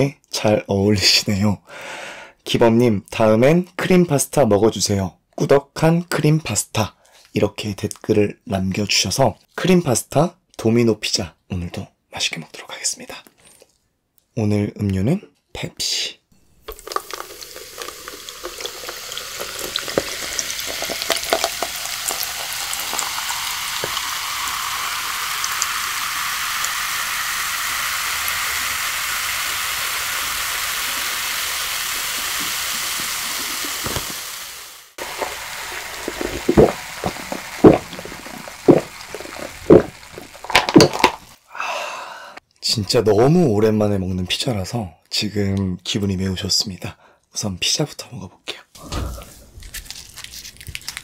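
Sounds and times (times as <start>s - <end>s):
cola fizzing into cup of ice: 16.4s - 41.4s
loud gulps of drinking: 35.1s - 40.5s.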